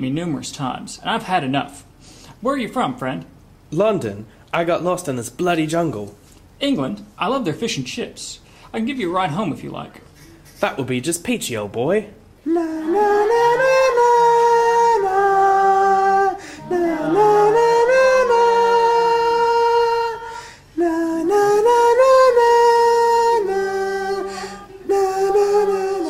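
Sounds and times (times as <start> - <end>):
person singing la la tune: 12.4 - 26.0
fainter lower voice part: 16.0 - 21.1.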